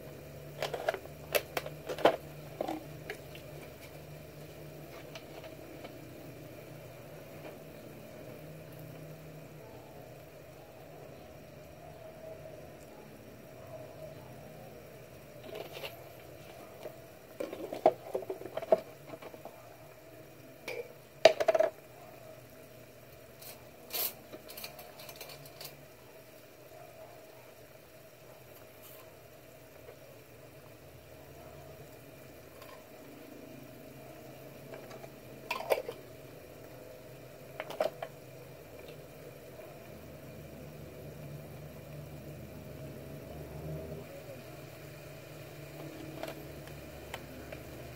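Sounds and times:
liquid bubbling in a pan: 0.0s - 47.9s.

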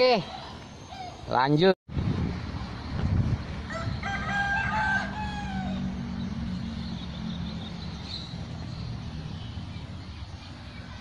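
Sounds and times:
rooster crowing: 3.7s - 6.0s.

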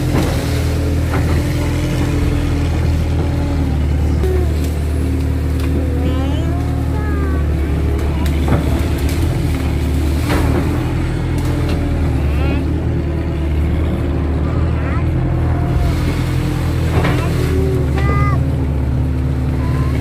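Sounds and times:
diesel engine droning: 0.0s - 20.0s.

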